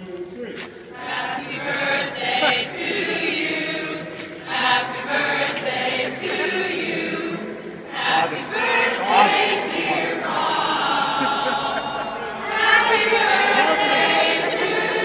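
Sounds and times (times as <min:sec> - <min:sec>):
girls' choir singing a cappella: 0:00.9 - 0:15.0.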